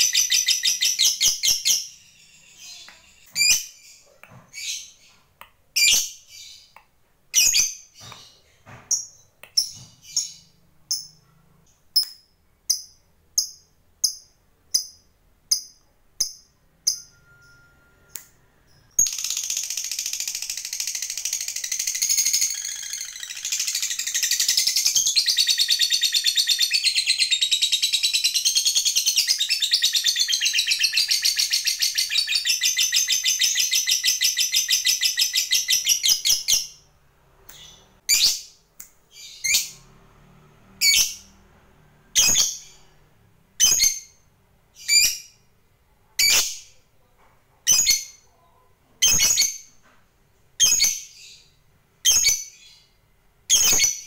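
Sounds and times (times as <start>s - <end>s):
shrill bird calls: 0.0s - 5.2s, 16.9s - 36.8s.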